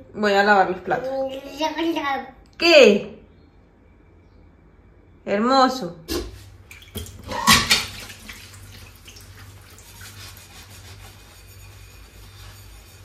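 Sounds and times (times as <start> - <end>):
water and dishes being washed: 6.1 - 13.0
dishes knocking and clattering: 6.9 - 8.1.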